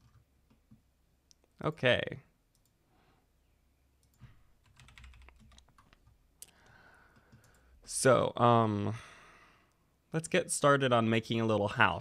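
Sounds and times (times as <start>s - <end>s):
computer keyboard and mouse clicks: 4.0s - 6.2s.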